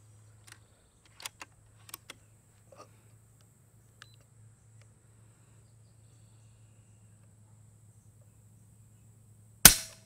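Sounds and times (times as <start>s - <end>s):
air rifle lever clicks: 0.4s - 2.2s.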